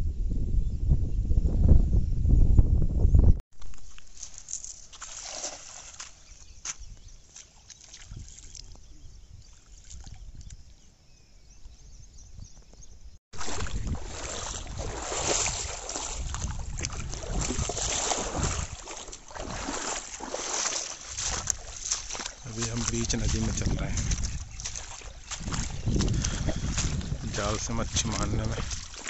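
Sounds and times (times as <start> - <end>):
legs wading through shallow water: 3.6 - 11.0, 13.3 - 29.0
quiet water sounds: 3.6 - 29.0.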